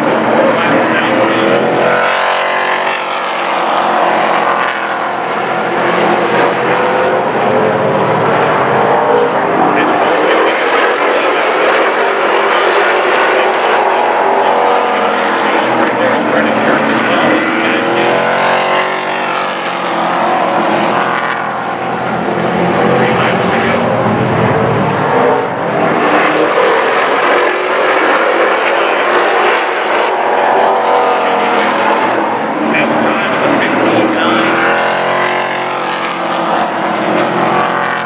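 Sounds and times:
race truck engines passing: 0.0s - 38.0s.

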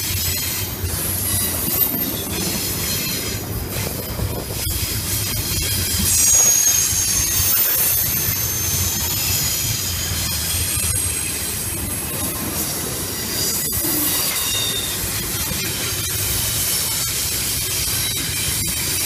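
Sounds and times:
train wheels rumbling on rail: 0.0s - 19.0s
wheel flange squeal: 0.1s - 3.9s, 4.5s - 11.9s, 12.6s - 16.1s.

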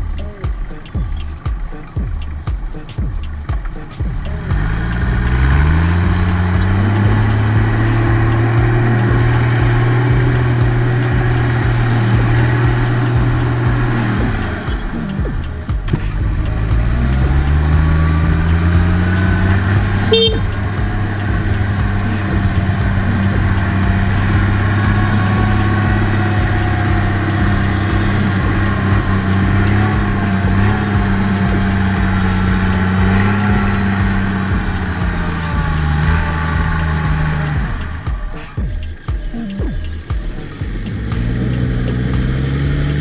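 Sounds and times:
truck engine running: 0.0s - 43.0s
high horn toot: 18.7s - 36.8s.

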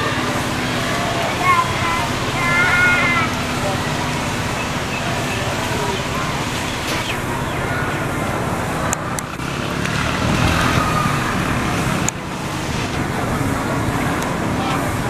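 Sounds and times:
road vehicles passing: 0.0s - 15.0s.

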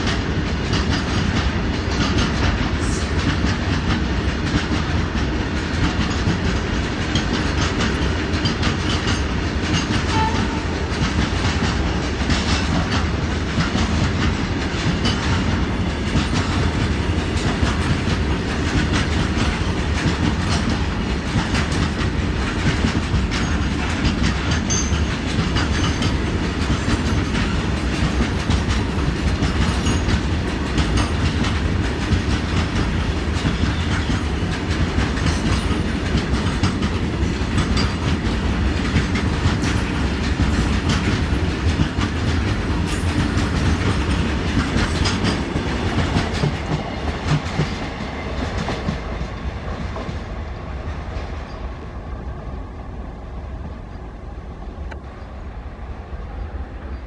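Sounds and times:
train wheels clickety-clack: 0.0s - 51.8s.

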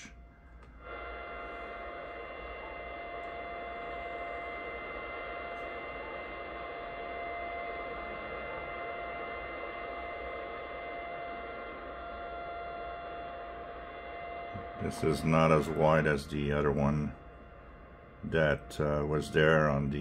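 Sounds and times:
steady radio tones: 0.0s - 20.0s
radio band hiss: 0.8s - 13.3s, 13.9s - 20.0s.

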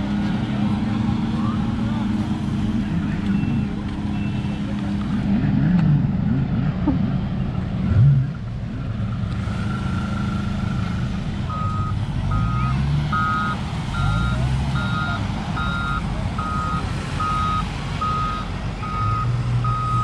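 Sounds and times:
diesel engine revving: 0.0s - 20.0s
reversing alarm beeping: 9.6s - 20.0s.

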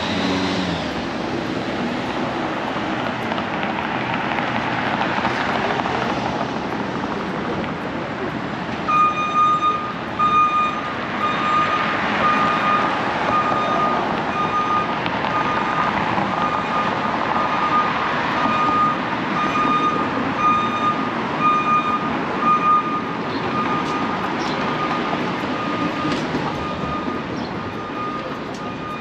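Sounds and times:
street traffic noise: 0.0s - 29.0s
vehicle reversing alarm beeping: 8.8s - 29.0s.

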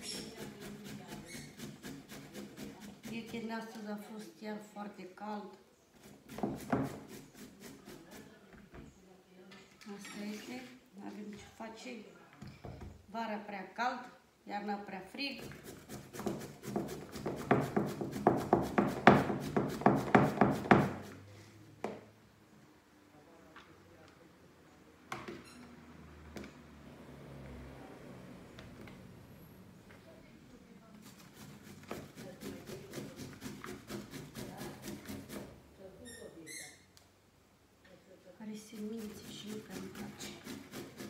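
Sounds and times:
zucchini rasping on metal grater: 0.0s - 4.4s, 6.0s - 8.4s, 31.0s - 35.6s, 38.7s - 41.0s.

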